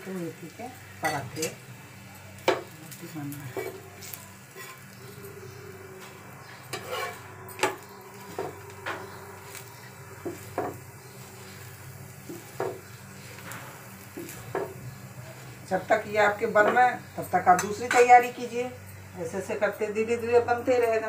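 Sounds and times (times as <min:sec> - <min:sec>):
flatbread sizzling: 0:00.0 - 0:21.0
spatula scraping frying pan: 0:03.5 - 0:15.6.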